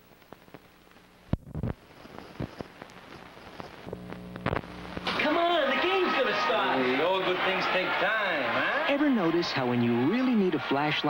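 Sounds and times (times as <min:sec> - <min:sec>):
faint low hum: 0:00.0 - 0:05.2
background noise: 0:00.0 - 0:11.0.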